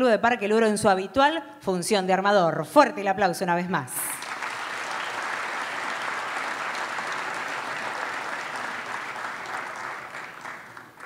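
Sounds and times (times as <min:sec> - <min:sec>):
large audience applauding: 0:04.1 - 0:11.0.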